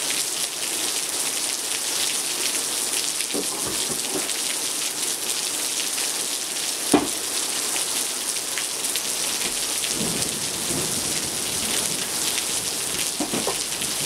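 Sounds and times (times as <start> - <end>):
steady rain: 0.0 - 14.0
raindrops ticking: 9.2 - 14.0
distant thunder rumble: 9.5 - 14.0.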